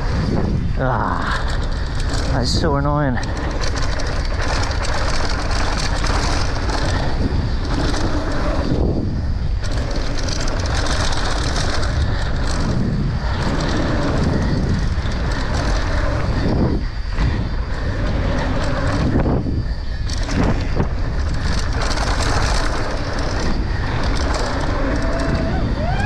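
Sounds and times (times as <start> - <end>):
bike rattling: 0.0 - 26.0
bike tyres on dirt and gravel: 0.0 - 26.0.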